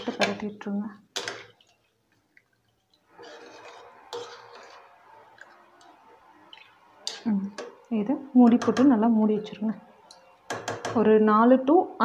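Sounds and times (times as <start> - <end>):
liquid sloshing: 1.2 - 10.5
ladle knocking on pot: 10.5 - 11.0.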